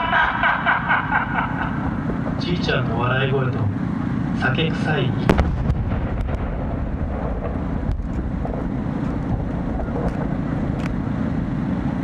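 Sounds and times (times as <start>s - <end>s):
wind buffeting microphone: 5.2s - 12.0s.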